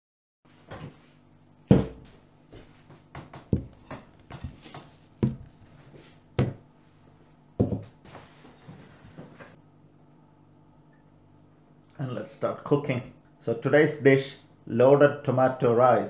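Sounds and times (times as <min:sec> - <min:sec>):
low steady hum: 0:00.5 - 0:16.0
dishes and board knocking on table: 0:01.7 - 0:02.1, 0:03.2 - 0:05.5, 0:07.6 - 0:07.9.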